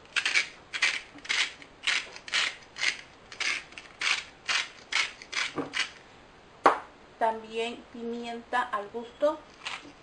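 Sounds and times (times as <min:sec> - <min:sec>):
salt grinder crunching: 0:00.1 - 0:06.0.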